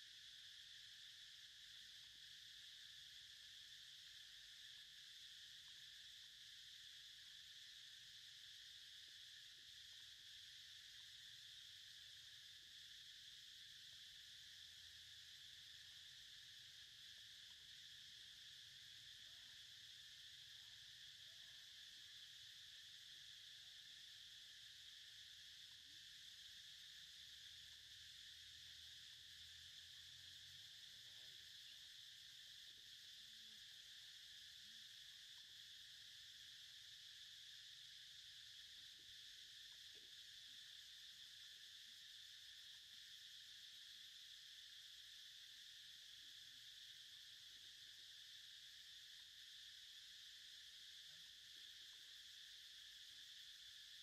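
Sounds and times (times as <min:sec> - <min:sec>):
high-pitched insect drone: 0:00.0 - 0:54.0.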